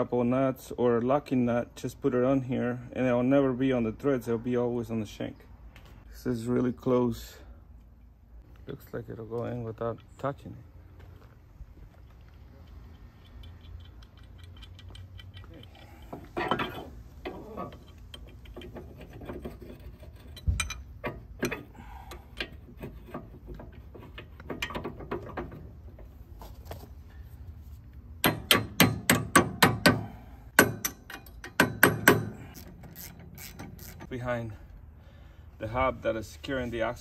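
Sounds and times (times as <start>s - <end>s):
hammer tapping on steel: 28.2s - 32.4s.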